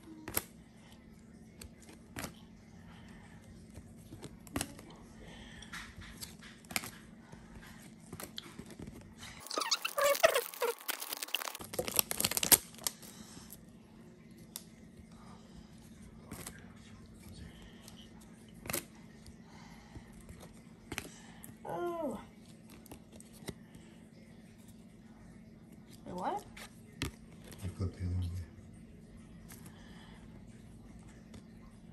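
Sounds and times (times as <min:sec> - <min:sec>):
trading cards flipped and clicking: 0:05.8 - 0:13.0
loud crinkling rustle: 0:08.6 - 0:12.9.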